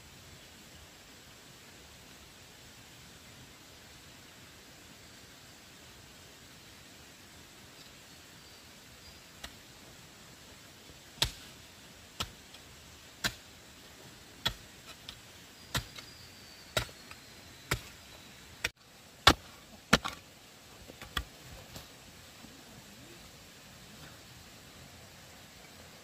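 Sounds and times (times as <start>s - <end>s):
hand tool striking bamboo: 11.2s - 11.5s, 13.2s - 13.4s, 14.4s - 18.0s, 19.2s - 20.2s.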